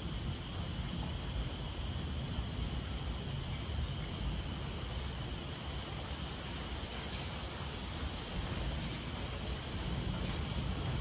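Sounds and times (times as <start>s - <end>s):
heavy rain hissing: 0.0s - 11.0s.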